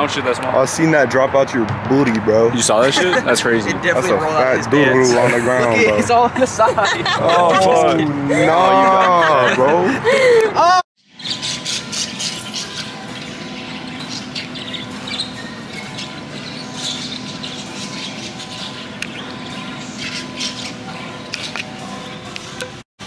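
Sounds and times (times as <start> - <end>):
high chirps: 11.0 - 22.7.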